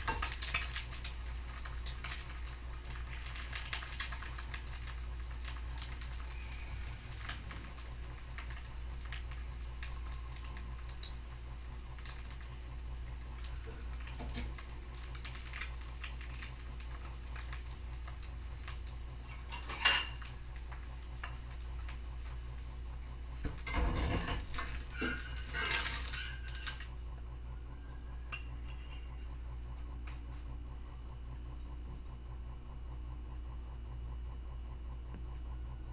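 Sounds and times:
egg sizzling in oil: 0:00.0 - 0:27.4
spatula scraping pan: 0:23.7 - 0:26.8.

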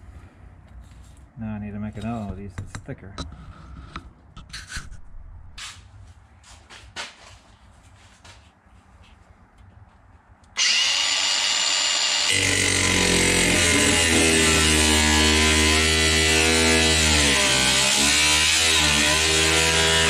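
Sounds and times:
angle grinder whining: 0:10.6 - 0:20.0
grinder cutting sheet steel: 0:10.6 - 0:20.0.

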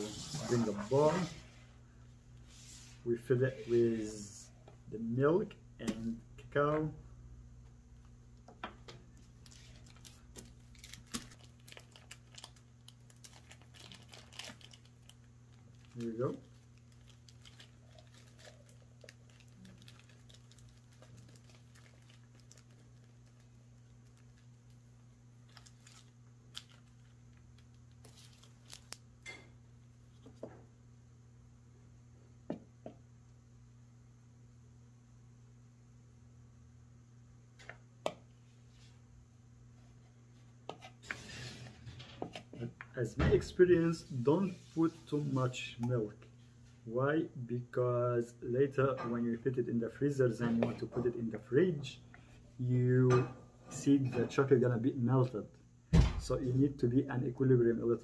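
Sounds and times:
steady low hum: 0:00.0 - 0:58.0
paper bag rustling: 0:09.4 - 0:24.8.

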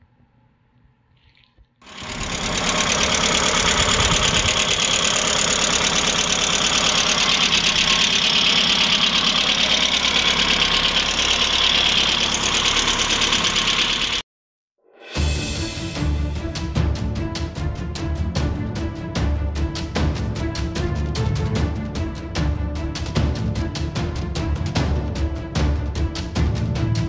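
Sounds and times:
car engine idling: 0:01.8 - 0:14.2.

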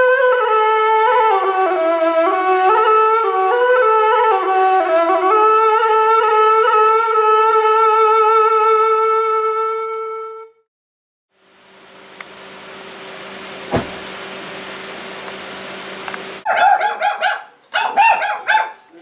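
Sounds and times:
solo wind instrument melody: 0:00.0 - 0:10.7.

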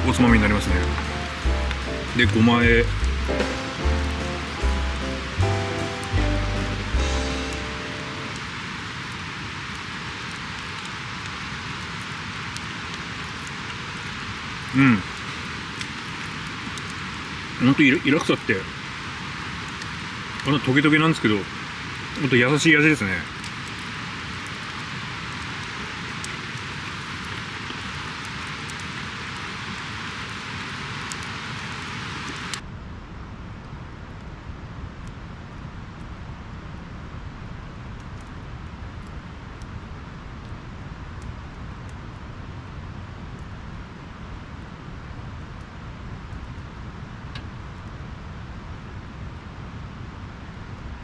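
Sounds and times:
music tune: 0:00.0 - 0:08.3
campfire crackling: 0:00.0 - 0:51.0
low outdoor rumble: 0:00.0 - 0:51.0.

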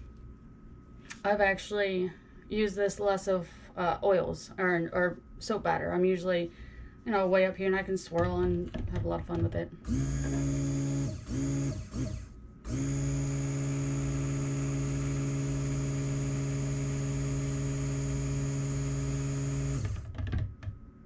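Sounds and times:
stick blender running: 0:09.8 - 0:20.2.

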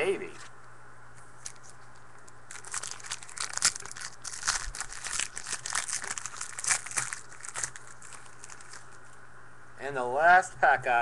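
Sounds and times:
wrapper crinkling and tearing: 0:02.5 - 0:09.0.

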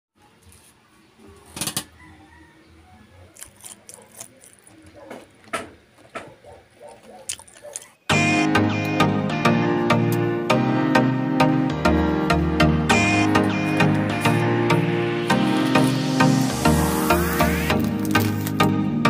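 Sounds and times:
crisp crackles of fried food: 0:03.3 - 0:05.5, 0:06.9 - 0:08.0, 0:17.3 - 0:18.7
background music: 0:08.1 - 0:19.0.

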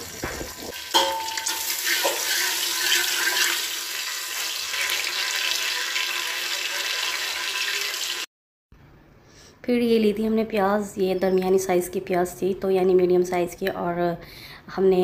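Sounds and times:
spices sizzling in hot oil: 0:00.0 - 0:08.3.

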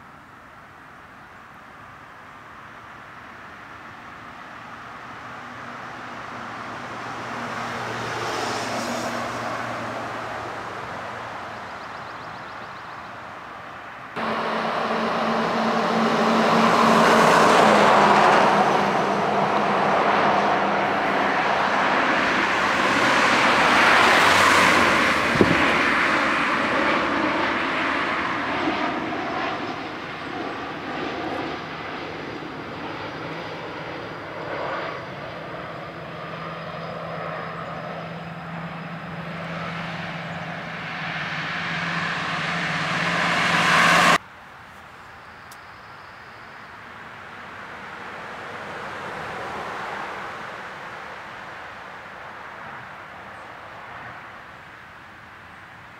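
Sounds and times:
cars passing: 0:03.9 - 0:44.3, 0:46.7 - 0:55.6.

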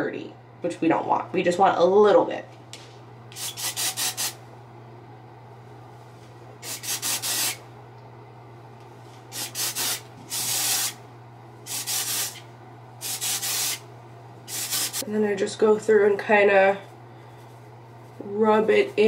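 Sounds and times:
aerosol can spraying: 0:03.4 - 0:04.4, 0:06.6 - 0:07.6, 0:09.3 - 0:11.0, 0:11.7 - 0:12.4, 0:13.0 - 0:13.8, 0:14.5 - 0:15.0.

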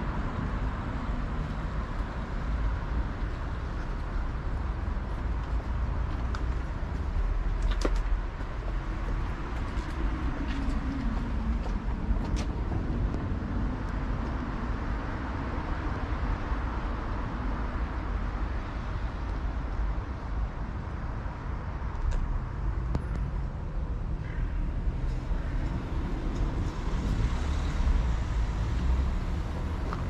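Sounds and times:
city street traffic: 0:00.0 - 0:30.0.

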